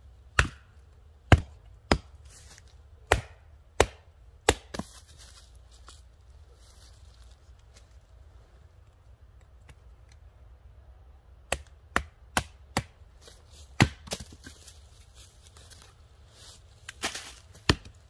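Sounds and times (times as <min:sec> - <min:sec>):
hatchet splitting firewood: 0:00.1 - 0:05.1, 0:11.4 - 0:14.8, 0:16.9 - 0:18.0
sharp knocks of wood on block: 0:00.4 - 0:00.7, 0:11.5 - 0:13.0.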